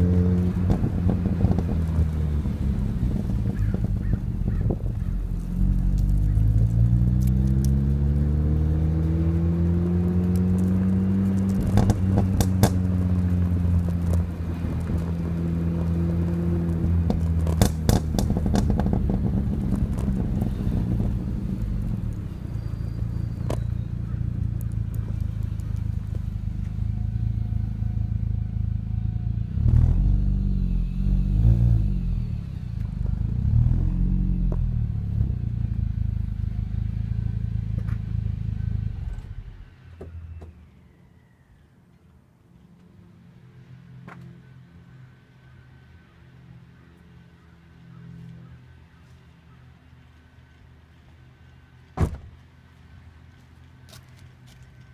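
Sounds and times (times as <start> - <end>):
car engine droning: 0.0 - 41.5.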